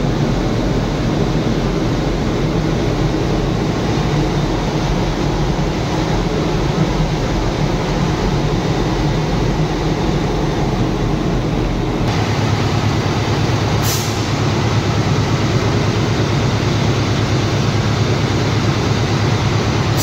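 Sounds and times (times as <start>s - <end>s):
diesel locomotive engine running: 0.0s - 20.0s
air hiss: 13.7s - 14.7s.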